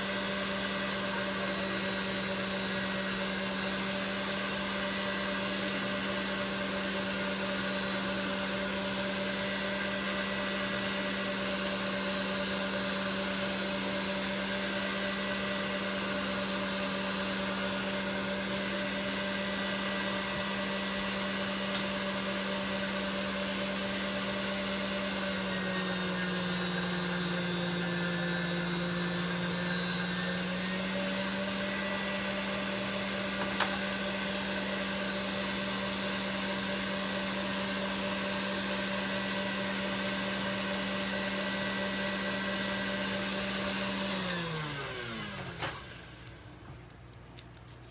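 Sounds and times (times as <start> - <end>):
stand mixer motor humming: 0.0 - 46.6
small clicks: 46.2 - 47.9.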